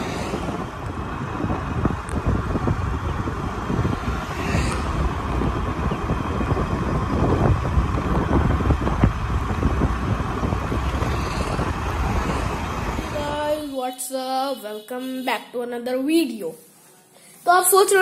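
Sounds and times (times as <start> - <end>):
wind buffeting microphone: 0.0 - 14.3
road and traffic noise: 0.0 - 15.8.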